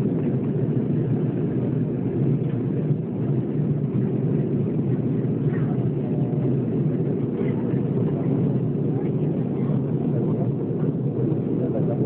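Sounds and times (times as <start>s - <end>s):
airplane cabin engine rush: 0.0s - 12.0s.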